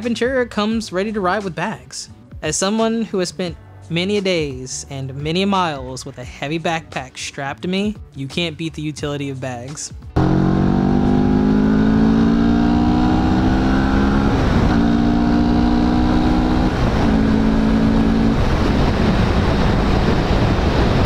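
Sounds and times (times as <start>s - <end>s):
motorcycle accelerating: 10.2s - 21.0s
wind rush on microphone: 16.2s - 21.0s.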